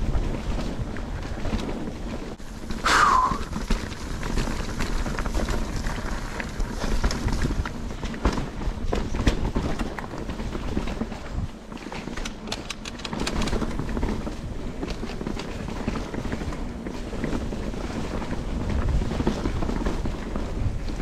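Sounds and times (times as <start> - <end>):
bike tyre noise: 0.0 - 21.0
wind buffeting microphone: 0.0 - 21.0
quick clicks and rattles: 11.9 - 14.2.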